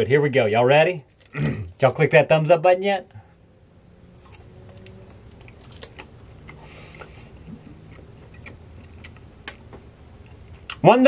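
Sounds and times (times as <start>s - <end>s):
person chewing: 1.1s - 1.9s, 4.2s - 10.8s.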